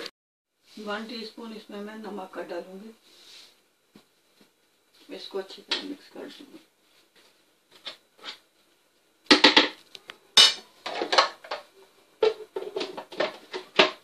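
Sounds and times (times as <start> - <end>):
plastic bowl and lid clattering: 10.8 - 14.0.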